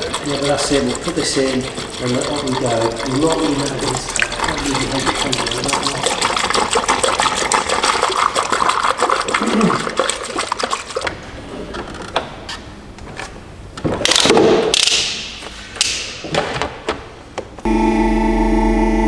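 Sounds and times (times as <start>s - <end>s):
liquid glugging and splashing: 0.0s - 11.5s.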